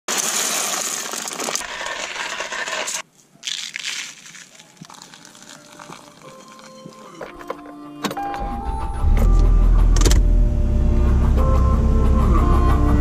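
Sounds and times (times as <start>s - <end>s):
coffee beans rattling into hopper: 0.1s - 6.7s
ground coffee rustling into filter: 0.1s - 7.7s.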